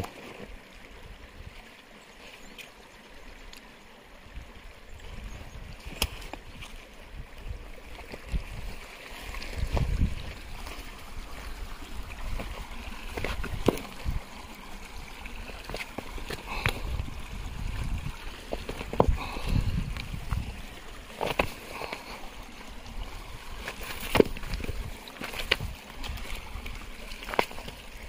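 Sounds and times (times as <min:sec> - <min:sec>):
stream babbling over stones: 0:00.0 - 0:28.0
rock knocking and scraping: 0:12.2 - 0:14.4, 0:15.3 - 0:22.3, 0:23.3 - 0:28.0.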